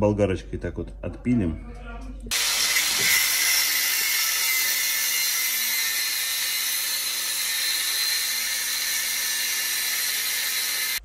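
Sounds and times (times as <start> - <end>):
angle grinder cutting metal: 2.3 - 11.0.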